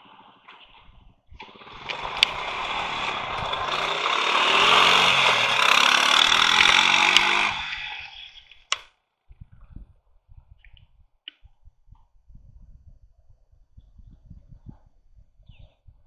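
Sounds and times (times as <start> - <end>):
atv engine accelerating past: 1.6 - 8.2
sharp click: 6.5 - 7.4, 8.5 - 8.9.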